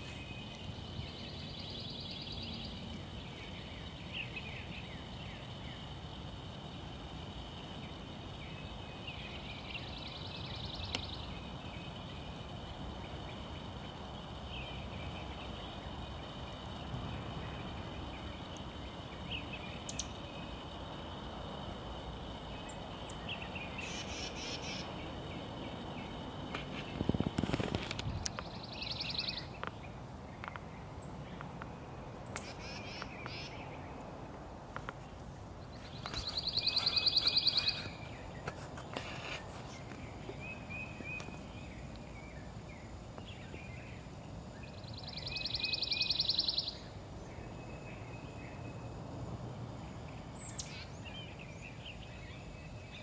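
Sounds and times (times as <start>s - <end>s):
outdoor hiss: 0.0s - 53.0s
short bird chirps: 35.8s - 38.2s
bird trilling: 36.1s - 38.1s.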